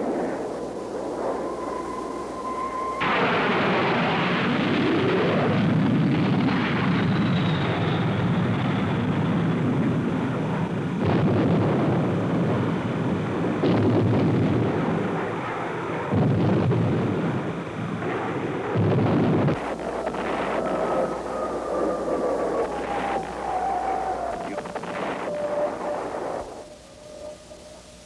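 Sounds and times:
jet aircraft noise: 0.0s - 28.0s
heavy bomb explosions: 2.5s - 7.3s, 11.0s - 15.4s, 16.1s - 27.7s.

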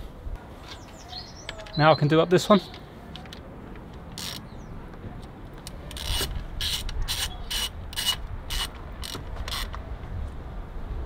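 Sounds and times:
ratchet wrench clicking: 5.9s - 9.8s.

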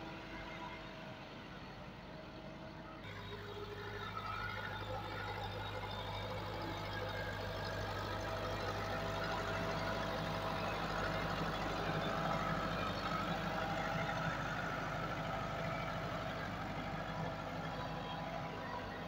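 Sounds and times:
tractor diesel engine under load: 0.0s - 19.0s.

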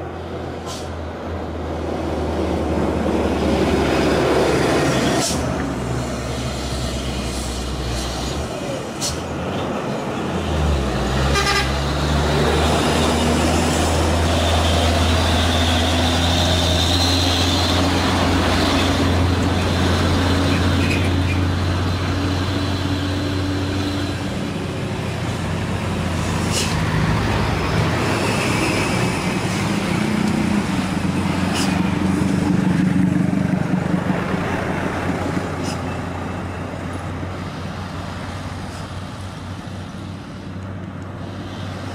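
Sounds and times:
diesel trucks droning uphill: 0.0s - 41.9s
passing car and motorbike traffic: 0.0s - 41.9s
vehicle horn toot: 11.3s - 11.8s.

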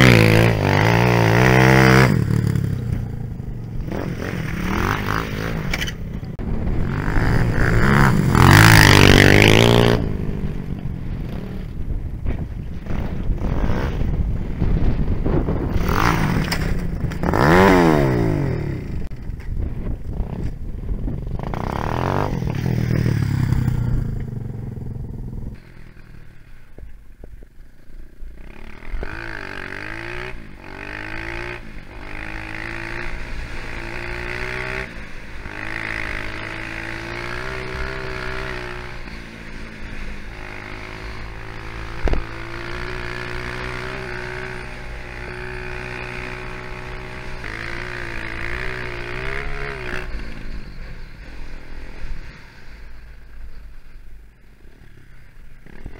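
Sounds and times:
dirt bike engine: 0.0s - 55.9s.

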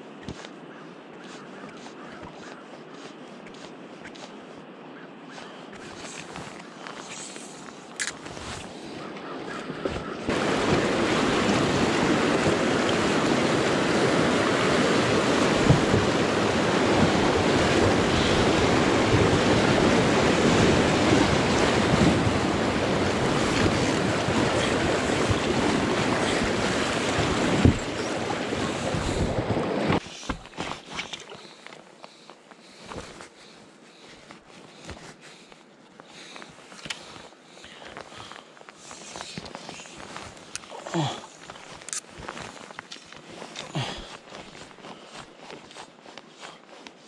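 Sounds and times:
whitewater rushing and splashing: 9.6s - 30.4s.

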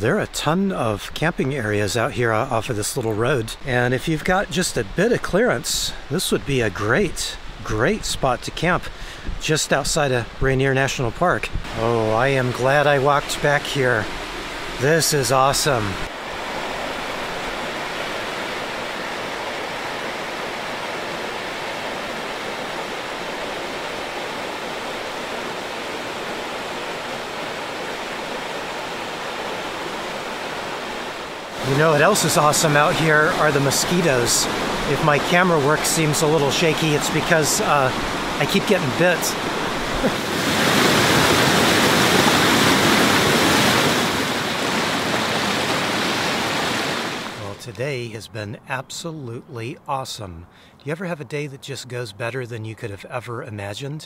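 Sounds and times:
river rushing over stones: 11.6s - 47.6s.

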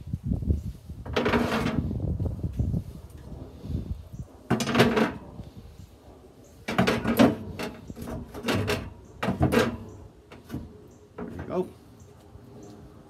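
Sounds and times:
metal grates clanking and scraping: 1.1s - 2.0s, 4.5s - 5.4s, 6.6s - 11.6s.

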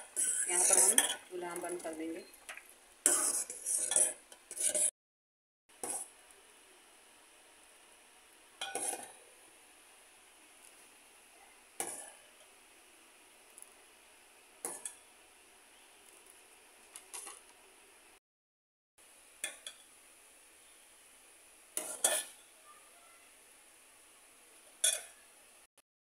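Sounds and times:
metal ladle clinking against pot: 24.8s - 25.1s.

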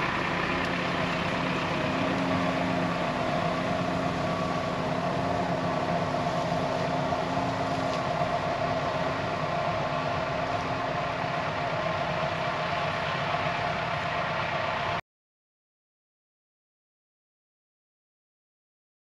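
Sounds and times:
heavy diesel engine running: 0.0s - 15.0s.

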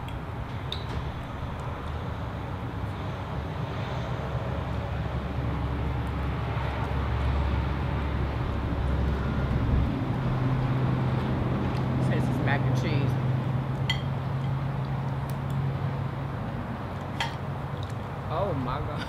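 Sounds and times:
low engine rumble: 0.0s - 19.0s.

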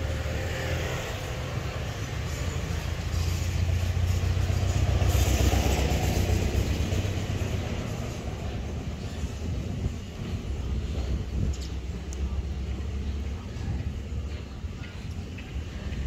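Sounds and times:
vehicle engine passing by: 0.0s - 8.8s.

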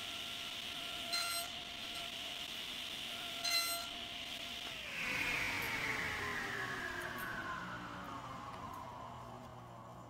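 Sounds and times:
table saw whining: 0.0s - 10.0s
saw blade ringing: 1.1s - 1.6s, 3.4s - 3.9s.

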